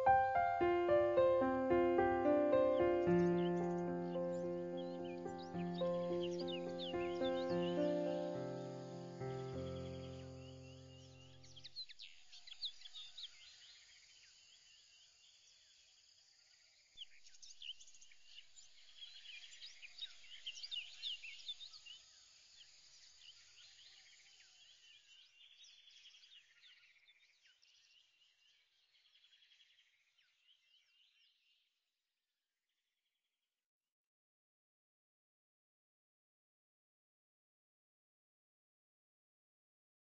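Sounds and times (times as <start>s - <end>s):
many birds chirping: 0.0s - 14.1s.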